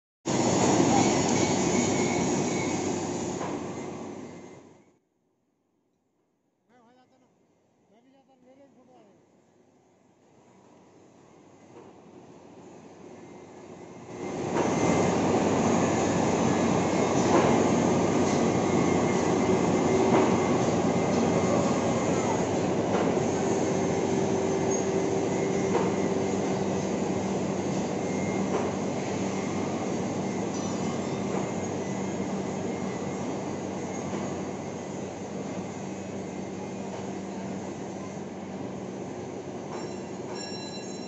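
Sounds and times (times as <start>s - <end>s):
heavy machinery running: 0.3s - 4.7s, 14.0s - 39.1s.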